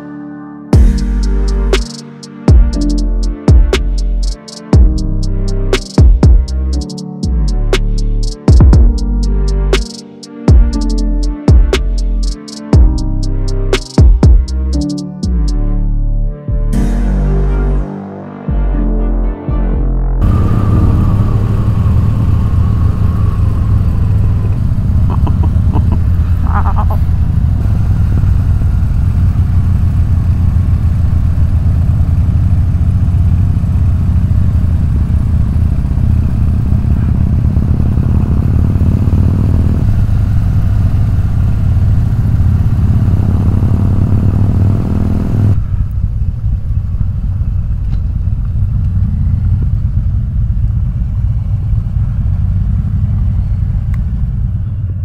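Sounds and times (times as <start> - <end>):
wind rushing: 20.2 - 24.9
motorcycle engine rumble: 20.2 - 55.0.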